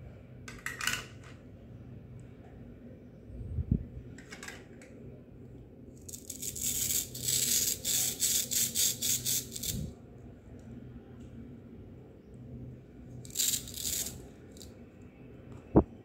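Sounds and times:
plastic toy pieces crackling: 6.0 - 9.8, 13.3 - 14.7.

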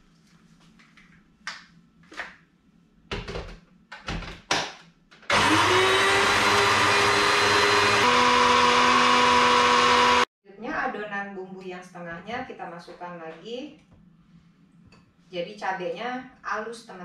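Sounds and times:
electric blender running: 5.3 - 10.3.

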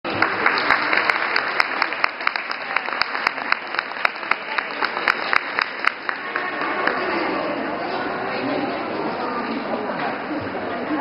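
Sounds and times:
audience applauding: 0.1 - 7.4.

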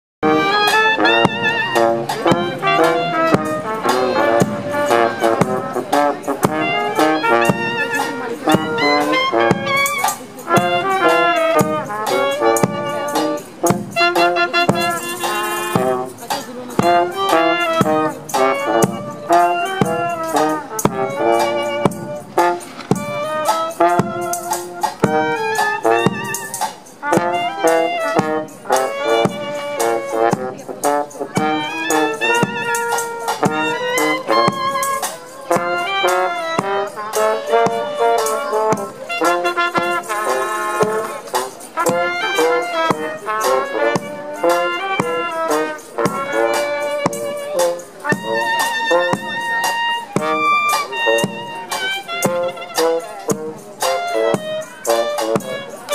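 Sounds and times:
bass drum beat: 0.2 - 34.9
clarinet: 0.2 - 55.9
larger brass horn: 0.2 - 55.9
trumpet: 0.2 - 55.9.

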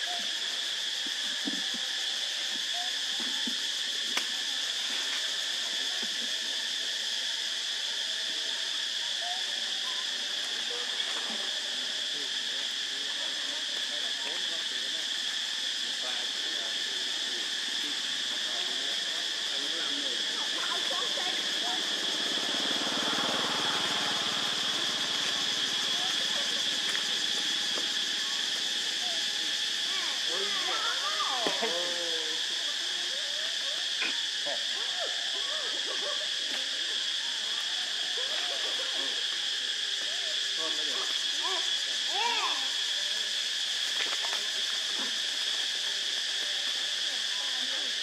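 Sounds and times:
insects droning: 0.0 - 48.0
small motorbike engine passing: 21.5 - 26.2.

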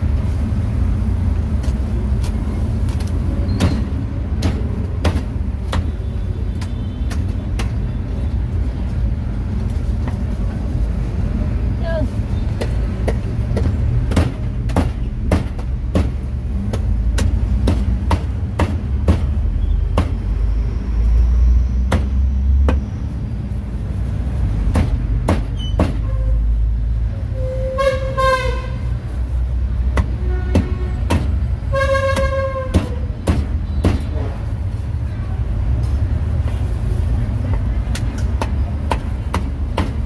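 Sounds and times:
road traffic rumbling: 0.0 - 40.0
vehicle horn honking: 27.3 - 28.8, 31.7 - 33.0.

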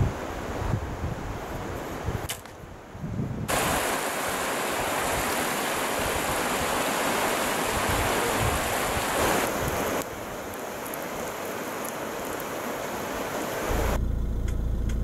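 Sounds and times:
river water rushing: 3.5 - 14.0.

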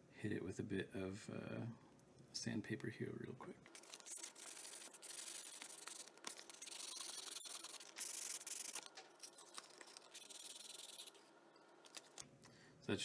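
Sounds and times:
metal scraping on sandpaper: 3.8 - 11.3.

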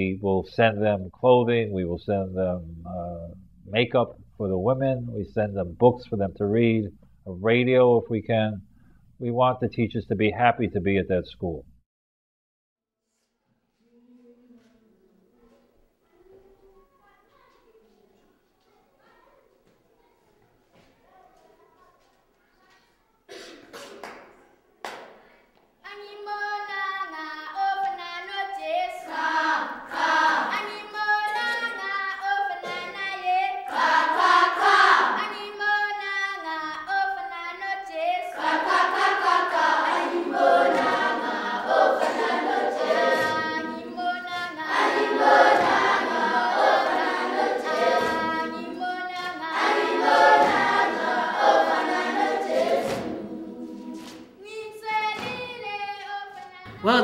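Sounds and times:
children's choir singing: 26.3 - 57.0.

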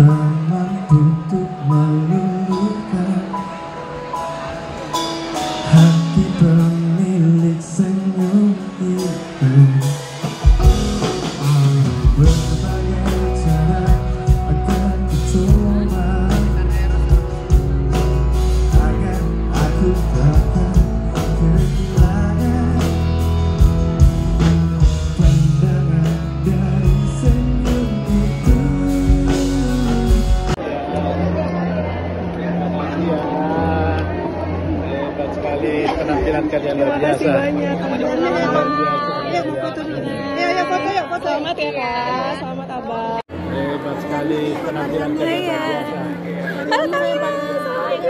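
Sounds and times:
person singing into a microphone: 0.0 - 3.7, 5.6 - 23.4, 24.4 - 30.6
electric guitar: 0.0 - 36.3
low bass notes: 5.6 - 35.4
drum kit hits: 10.2 - 14.5.

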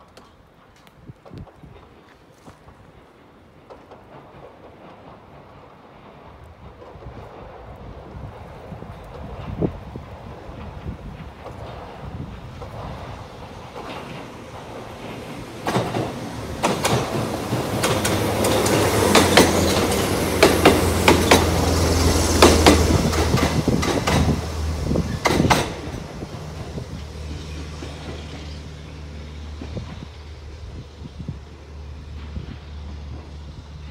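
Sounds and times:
electric train hum: 0.0 - 33.9
train wheels clicking over rail joints: 0.0 - 33.9.

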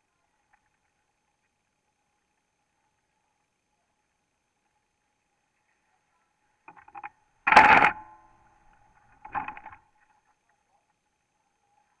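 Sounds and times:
kart being bumped and handled: 6.7 - 8.3.

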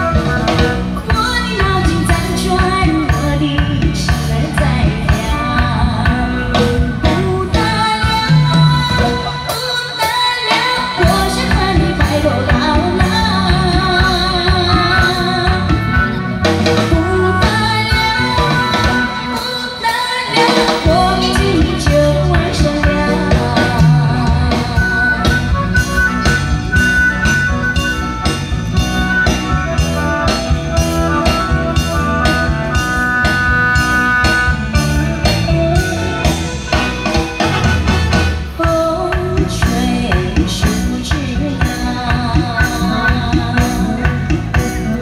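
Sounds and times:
woman singing pop song: 0.0 - 25.5, 38.5 - 45.0
drum kit beat: 0.0 - 45.0
live band playing: 0.0 - 45.0.

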